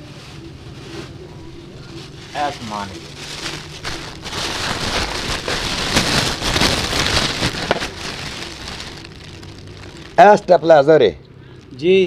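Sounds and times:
plastic bag crinkling: 1.5s - 10.7s.

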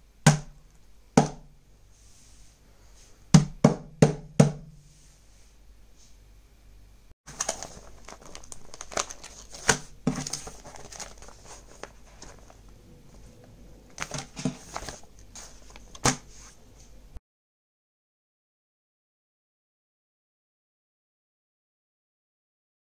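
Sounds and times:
plastic bag crinkling: 7.3s - 16.0s.

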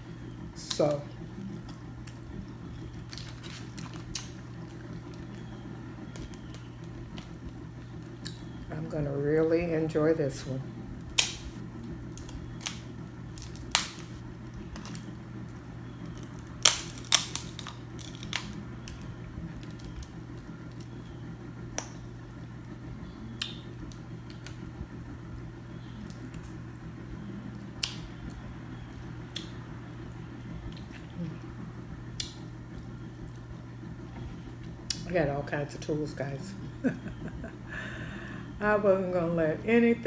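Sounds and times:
steady low hum: 0.0s - 40.0s
crab shells cracking: 3.0s - 5.4s, 11.0s - 15.1s, 16.0s - 21.0s.

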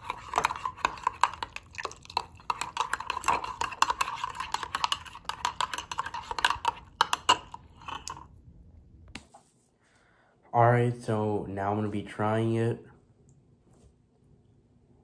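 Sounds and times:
spoon clinking in ceramic mug: 0.0s - 8.3s.

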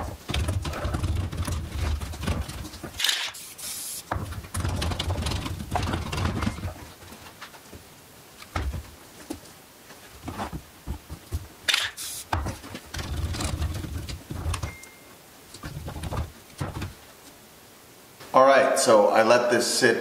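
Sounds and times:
knocks and rustles on cardboard: 0.0s - 3.0s, 4.1s - 7.9s, 8.5s - 9.4s, 10.0s - 11.6s, 12.3s - 14.8s, 15.6s - 17.0s
aerosol spray can hiss: 3.3s - 4.1s, 11.8s - 12.3s.

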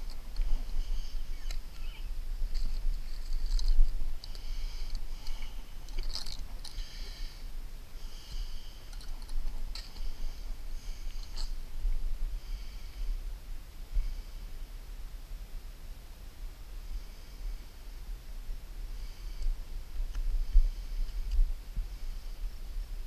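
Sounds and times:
bird calling: 0.0s - 2.2s
wind rumbling on microphone: 0.0s - 23.0s.

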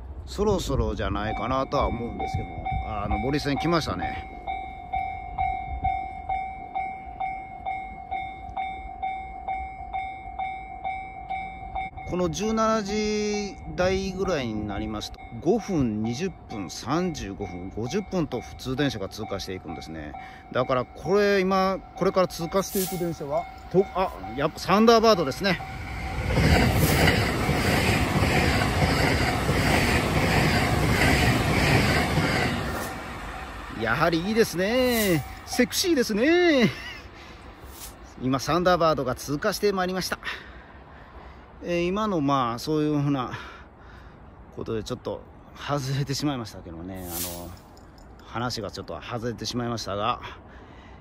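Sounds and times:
wheels rattling on rails: 0.0s - 40.3s, 47.0s - 48.9s
electric train passing: 0.0s - 47.6s
level crossing alarm clanging: 13.6s - 29.9s.

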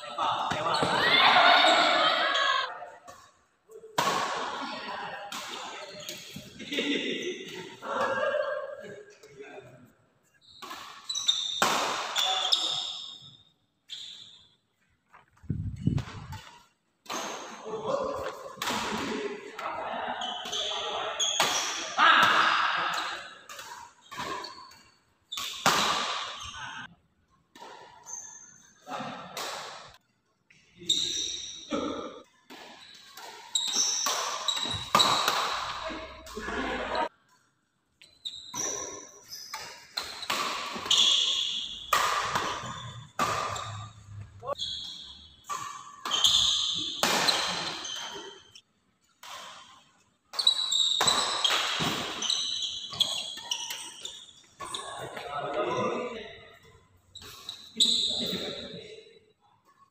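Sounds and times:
shoes squeaking on court: 10.2s - 16.7s, 23.9s - 25.6s, 27.8s - 28.8s, 30.5s - 31.7s, 32.8s - 36.2s, 38.0s - 48.6s, 50.3s - 55.3s, 56.6s - 58.7s
rackets striking shuttlecock: 38.6s - 43.8s.

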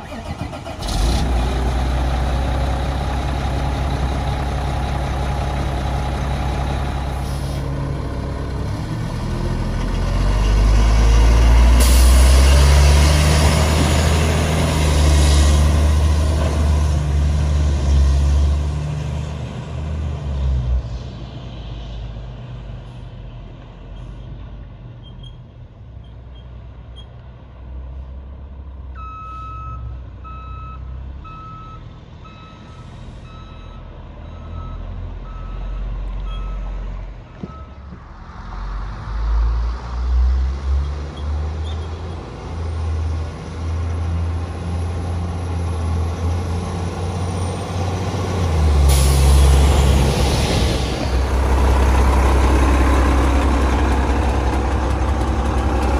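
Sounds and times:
diesel truck engine: 0.0s - 55.9s
distant reversing alarm beeping: 29.0s - 36.7s, 37.4s - 37.9s.

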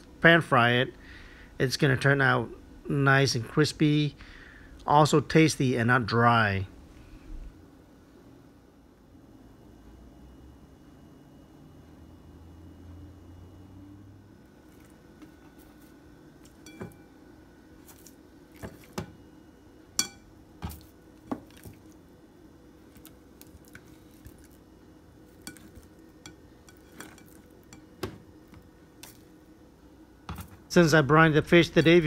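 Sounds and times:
knocks and clinks against bowl: 16.5s - 17.1s, 20.0s - 20.8s.

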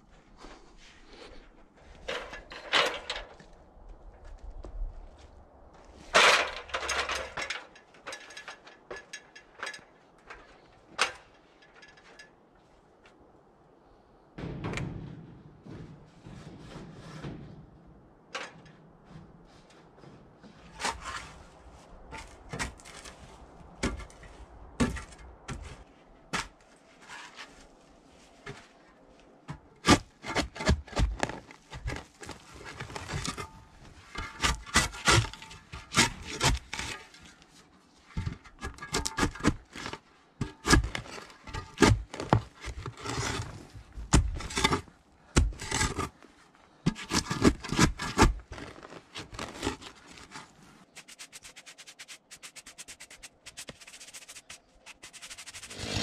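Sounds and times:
aluminium ladder knocks and clatters: 1.8s - 4.6s, 6.0s - 12.5s, 14.4s - 19.4s, 22.0s - 27.5s, 29.4s - 37.5s, 38.1s - 46.2s, 46.8s - 51.7s.

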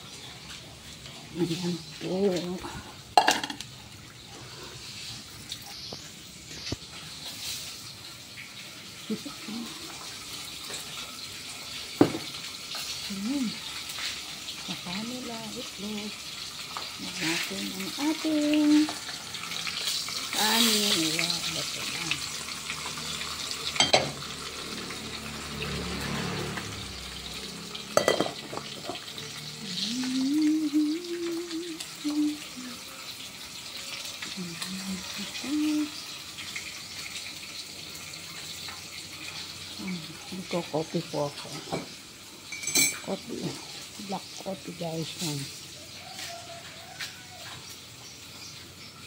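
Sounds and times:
pot simmering hiss: 0.0s - 49.0s
tap water running: 0.0s - 49.0s
metal saucepan clinks: 23.8s - 24.2s, 28.0s - 29.0s, 42.5s - 43.1s
metal pot lid clinks: 28.0s - 28.5s.

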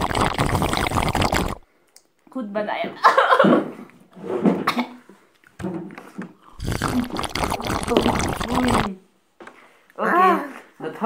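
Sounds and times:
person coughing and spluttering: 0.0s - 1.6s, 4.7s - 5.0s, 6.6s - 8.9s.

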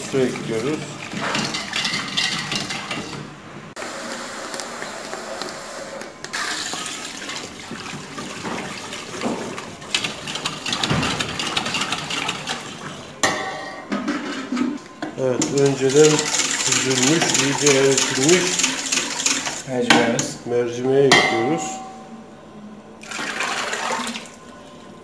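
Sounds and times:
liquid sloshing and swishing: 0.0s - 3.3s, 6.3s - 13.2s, 15.4s - 19.7s, 23.0s - 24.8s.

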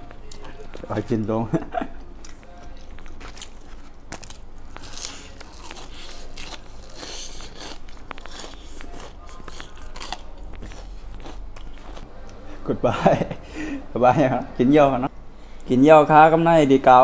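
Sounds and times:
person chewing crispy food: 2.2s - 12.0s.

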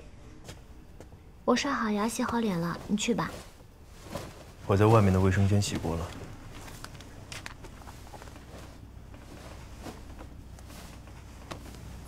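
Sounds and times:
faint rustles: 2.0s - 12.0s.

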